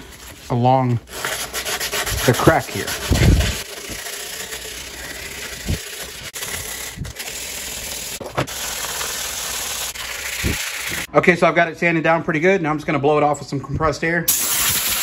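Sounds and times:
sandpaper rasping on metal: 0.0 - 11.1.

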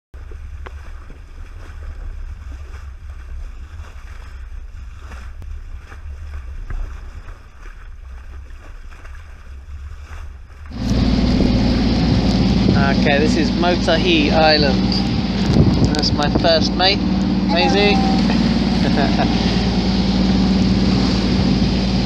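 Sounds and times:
low rumble of water: 0.2 - 22.0
wind against camera: 0.2 - 22.0
loud droning hum: 10.7 - 22.0.

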